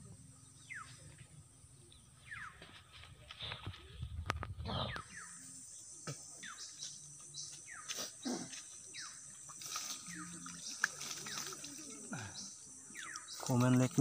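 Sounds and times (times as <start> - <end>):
birds calling: 0.0 - 14.0
high insect buzz: 4.8 - 14.0.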